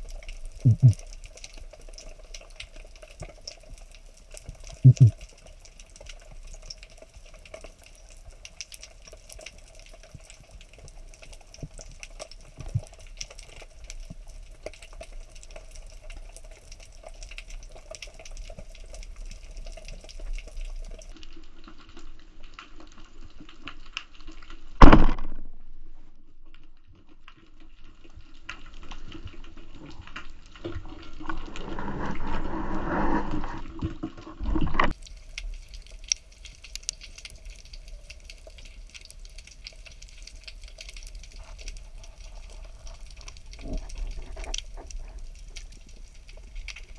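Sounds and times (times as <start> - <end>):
faint underwater crackling: 0.0 - 46.9
low hum: 0.7 - 1.0
speargun firing bang: 24.8 - 25.5
rough rustling and churning: 31.2 - 35.0.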